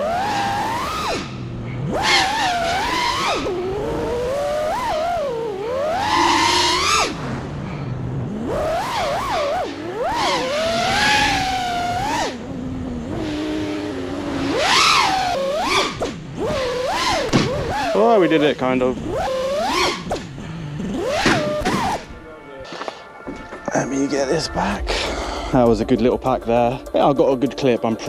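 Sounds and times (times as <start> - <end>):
quadcopter motors whining: 0.0 - 22.3.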